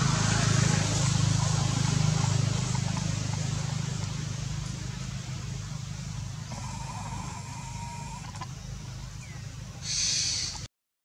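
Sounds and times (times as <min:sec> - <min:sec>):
engine rumbling: 0:00.0 - 0:10.7.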